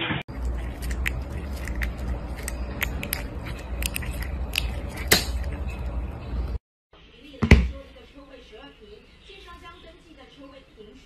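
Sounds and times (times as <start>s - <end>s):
cat gnawing and licking: 0.3s - 5.8s.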